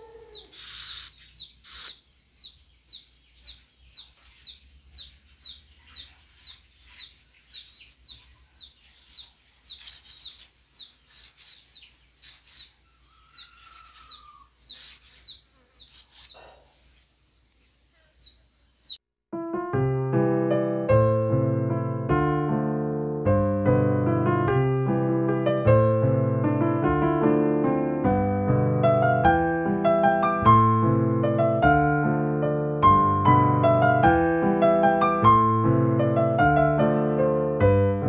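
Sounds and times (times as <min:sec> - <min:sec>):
small bird peeping: 0:00.0 - 0:19.0
knife scraping fibre strip: 0:09.6 - 0:16.4
piano music: 0:19.4 - 0:38.0.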